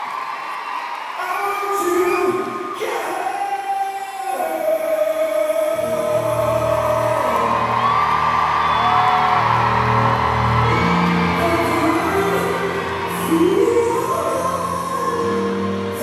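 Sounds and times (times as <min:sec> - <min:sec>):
man singing: 0:01.2 - 0:08.0, 0:11.1 - 0:16.0
band playing: 0:05.8 - 0:16.0.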